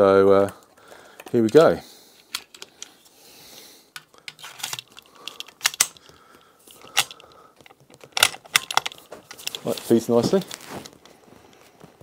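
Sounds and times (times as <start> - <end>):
cartridges clicking into magazine: 4.0 - 6.1, 6.7 - 9.6.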